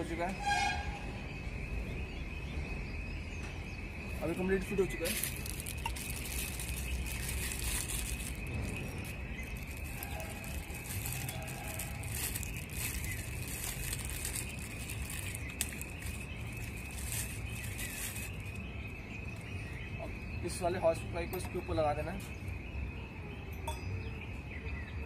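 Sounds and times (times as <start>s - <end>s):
plastic wrapping crinkling: 4.3s - 19.4s.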